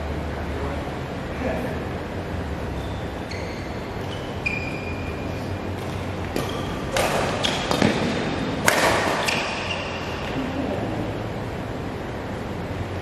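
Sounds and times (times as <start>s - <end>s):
court shoes squeaking: 2.5s - 10.7s
racket striking shuttlecock: 5.8s - 10.4s.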